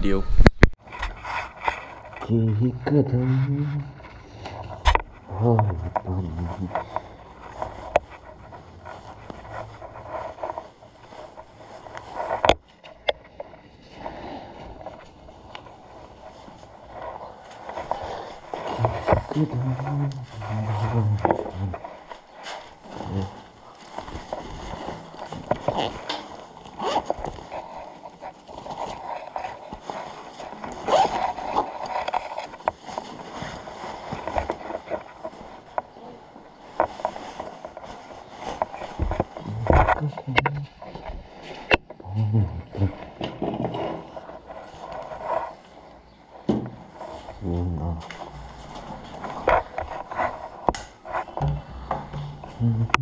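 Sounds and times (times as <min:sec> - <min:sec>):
clothing and shoes rustling: 0:03.9 - 0:42.0, 0:42.9 - 0:53.0
bag and objects rustling and knocking: 0:20.3 - 0:40.0.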